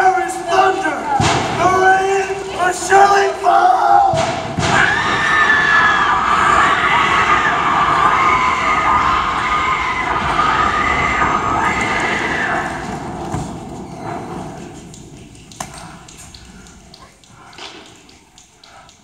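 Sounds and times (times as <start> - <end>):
young voices shouting and wailing: 0.0 - 13.1.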